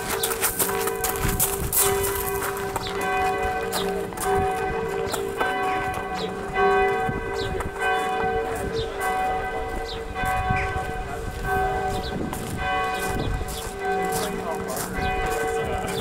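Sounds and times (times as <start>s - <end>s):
church bells ringing: 0.0s - 16.0s.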